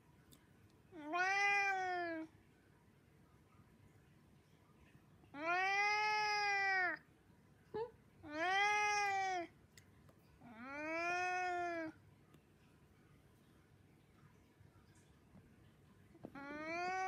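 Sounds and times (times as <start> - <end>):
cat chirp: 1.0 - 2.3, 5.4 - 7.0, 8.2 - 9.5, 10.4 - 12.0, 16.2 - 17.0
cat meowing: 1.0 - 2.3, 5.4 - 7.0, 8.2 - 9.5, 10.4 - 12.0, 16.2 - 17.0.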